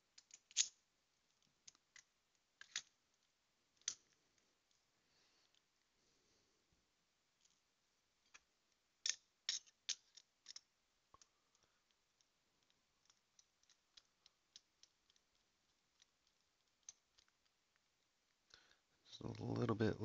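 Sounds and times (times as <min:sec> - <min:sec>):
padlock metal clicks: 0:00.2 - 0:00.8.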